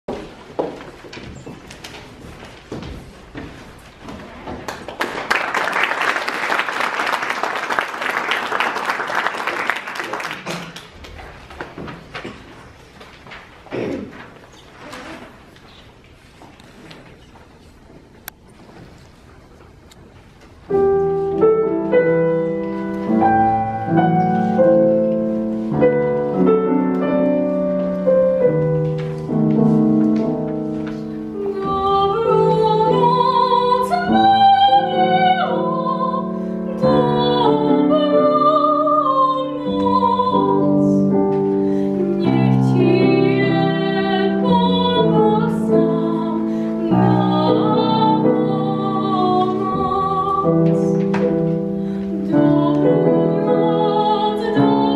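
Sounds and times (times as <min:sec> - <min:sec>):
grand piano: 0:00.1 - 0:54.9
woman singing classically: 0:31.3 - 0:41.3, 0:42.0 - 0:51.3, 0:52.0 - 0:54.9.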